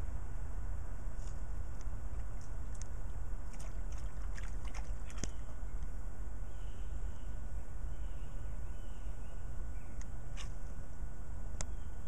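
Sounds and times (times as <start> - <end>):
low outdoor rumble: 0.0 - 12.0
water splashing in plastic dish: 3.5 - 5.5.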